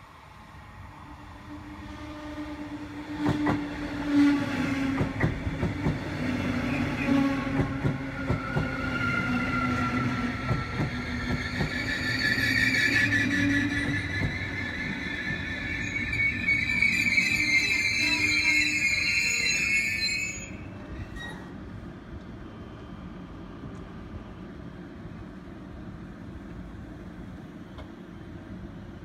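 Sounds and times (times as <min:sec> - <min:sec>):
train rumble: 0:00.0 - 0:19.6
train brakes squealing: 0:08.2 - 0:21.6
train wheels clicking: 0:10.4 - 0:12.0.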